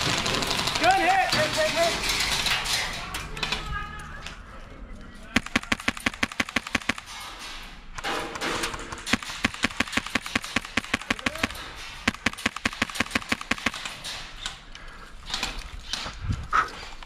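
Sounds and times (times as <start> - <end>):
airsoft rifle firing: 5.4 - 7.4, 8.0 - 14.1.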